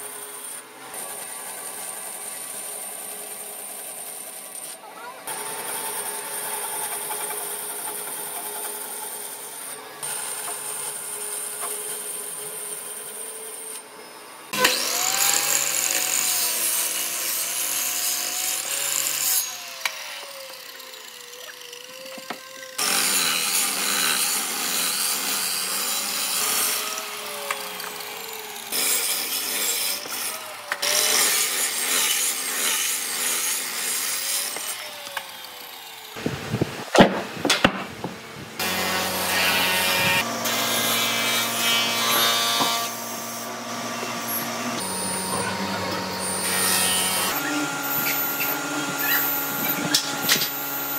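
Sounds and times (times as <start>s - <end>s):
miter saw cutting hardwood: 0.0s - 50.9s
bandsaw cutting wood: 14.5s - 37.8s, 38.6s - 50.9s.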